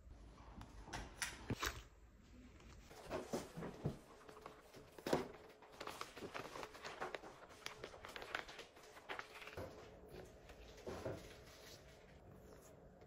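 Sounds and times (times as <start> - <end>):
plastic bag rustling and crinkling: 2.8 - 12.3.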